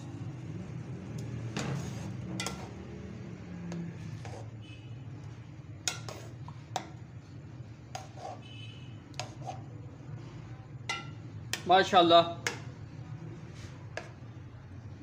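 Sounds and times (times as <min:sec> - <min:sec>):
spoon clinking against pot: 0:02.4 - 0:02.7, 0:05.8 - 0:07.0, 0:10.9 - 0:11.6.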